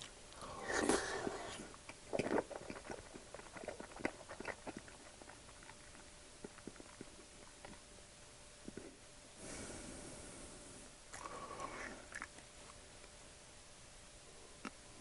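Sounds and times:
person eating scrambled egg: 0.0s - 7.8s
wet chewing clicks: 0.0s - 7.8s, 11.1s - 12.8s.

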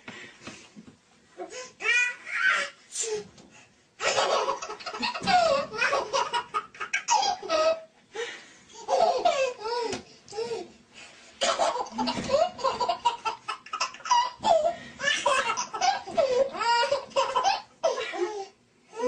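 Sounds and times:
baby laughing: 4.0s - 7.9s, 8.8s - 9.9s, 11.4s - 18.4s.

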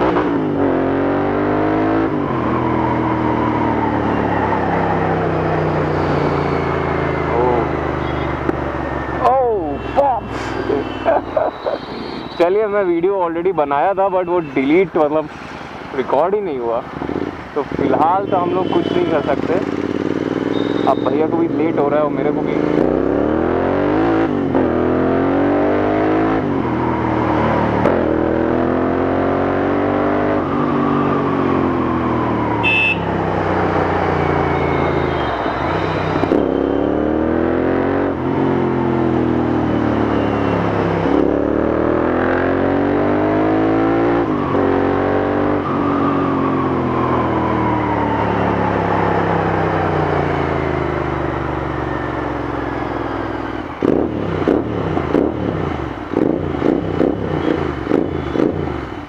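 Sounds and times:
motorcycle engine revving: 0.0s - 9.6s, 17.0s - 59.0s
exhaust pops and crackles: 57.8s - 58.7s.

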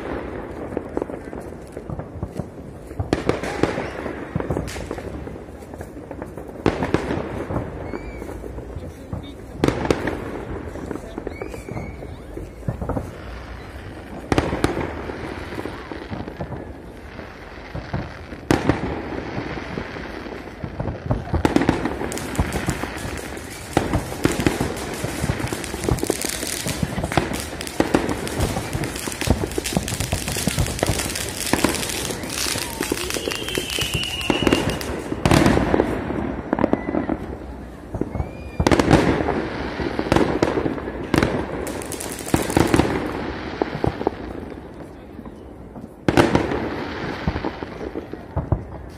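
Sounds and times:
fireworks bangs and crackling: 0.0s - 48.9s
firework whistle: 7.7s - 8.6s, 11.0s - 13.9s, 22.6s - 37.3s, 38.0s - 39.1s.

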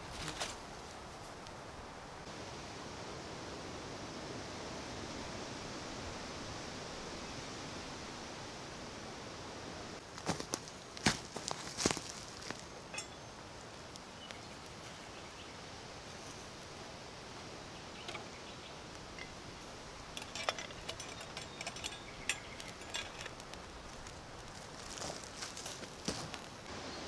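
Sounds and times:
faint outdoor hiss: 0.0s - 27.0s
metal pot lid clinking: 12.9s - 13.2s.

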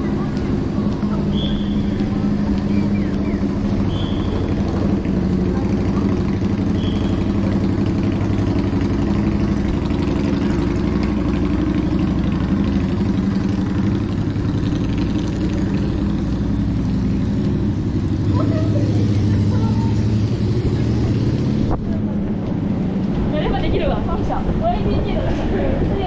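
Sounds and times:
city street noise: 0.0s - 26.0s
engine idling: 0.0s - 26.0s.

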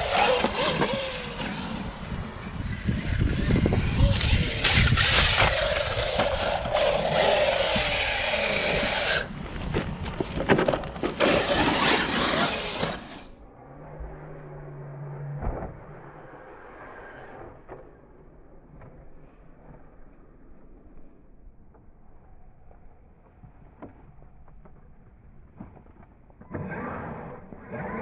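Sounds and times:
electric motor whine: 0.0s - 9.3s
rc truck driving off-road: 0.0s - 28.0s.

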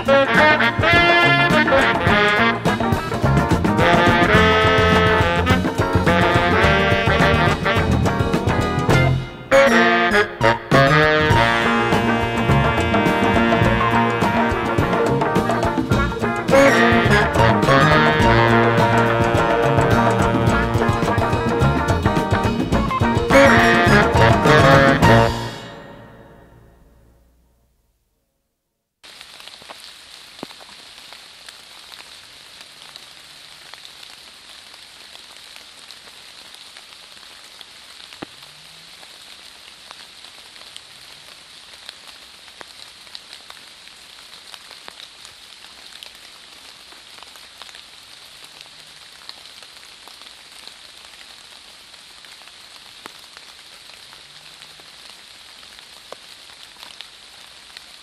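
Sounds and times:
water drops pattering on leaf litter: 29.0s - 58.0s.

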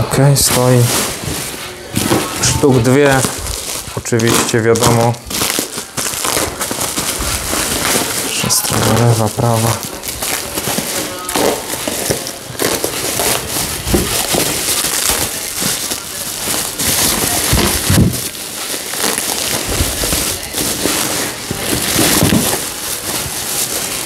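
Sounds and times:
bubble wrap crinkling: 0.0s - 24.0s.

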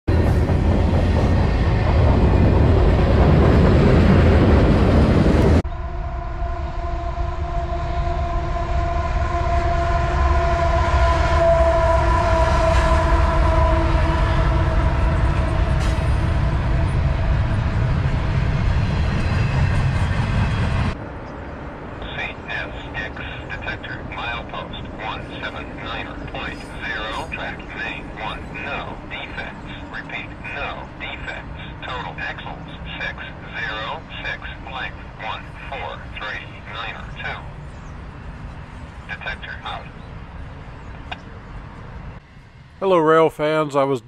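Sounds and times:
freight train wheels rumbling: 0.1s - 6.0s, 8.1s - 43.0s
locomotive air horn: 5.8s - 16.6s.

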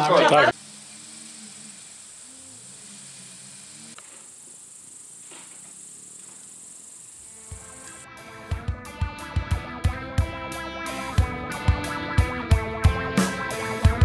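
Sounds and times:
crickets chirping: 0.0s - 8.0s.

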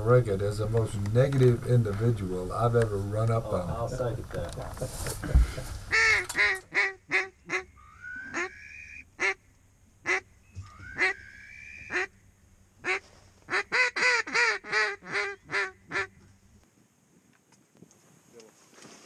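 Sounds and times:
duck call quacks: 5.9s - 9.4s, 10.0s - 10.2s, 10.9s - 12.1s, 12.8s - 16.2s
rising whistled notes: 7.8s - 9.0s, 10.4s - 11.9s.

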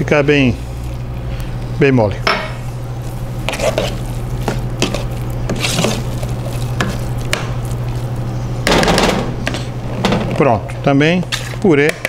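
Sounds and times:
steady low hum: 0.0s - 12.0s
fork clinking and scraping pot: 3.4s - 6.1s.

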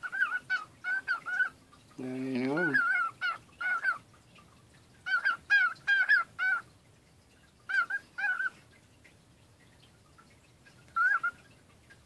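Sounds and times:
cockatiel warbled calls: 0.0s - 1.6s, 2.6s - 4.0s, 5.0s - 6.7s, 7.7s - 8.6s, 10.9s - 11.4s.

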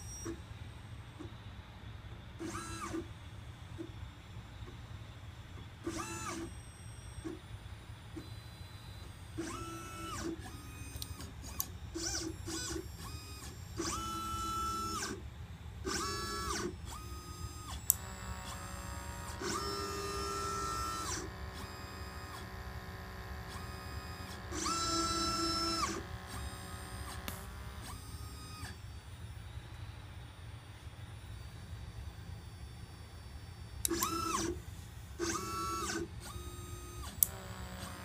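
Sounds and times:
steady low hum: 0.0s - 38.0s
stepper motors whining: 2.4s - 5.0s, 5.6s - 7.4s, 8.2s - 15.2s, 15.8s - 38.0s
sharp click: 37.0s - 37.4s.

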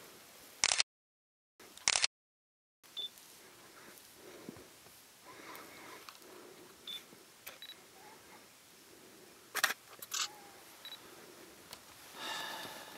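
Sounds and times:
camera shutter clicks: 0.6s - 0.8s, 1.8s - 2.1s.

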